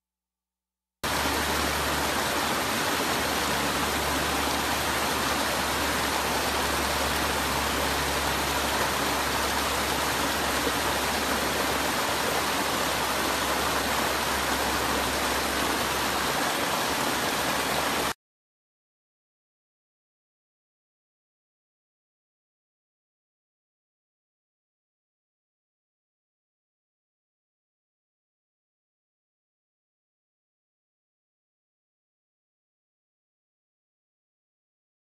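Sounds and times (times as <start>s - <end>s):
water rushing over rocky cascades: 1.0s - 18.2s.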